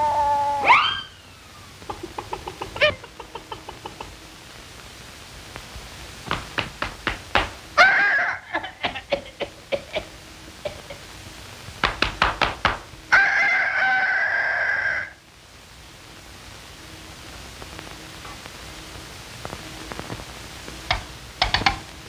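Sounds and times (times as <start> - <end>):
bird-like squawking call: 0.0 - 1.2
soundtrack hiss: 0.0 - 22.0
sharp knocks: 6.3 - 7.6, 11.8 - 12.9.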